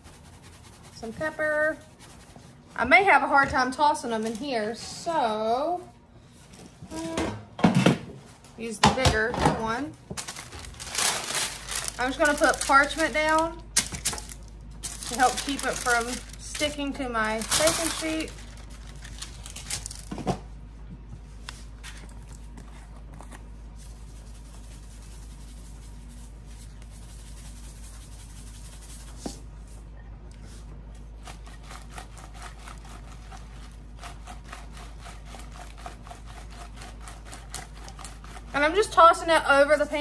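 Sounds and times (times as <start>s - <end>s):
faint steady hum: 0.0s - 40.0s
parchment paper rustling: 3.8s - 4.8s, 10.1s - 20.2s
shaker being shaken: 10.9s - 20.0s, 23.8s - 29.2s
sprouts tossed in bowl: 14.2s - 20.1s.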